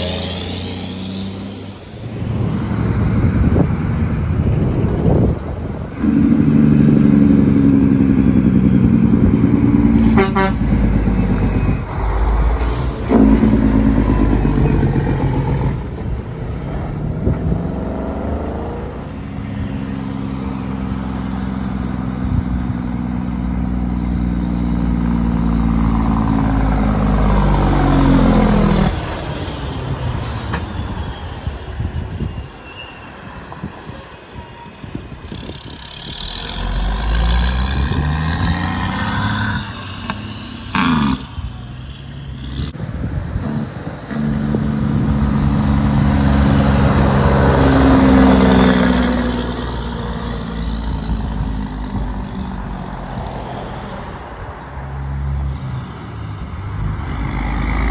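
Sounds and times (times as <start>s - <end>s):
truck engine brakes: 11.0s - 17.7s, 27.8s - 38.1s.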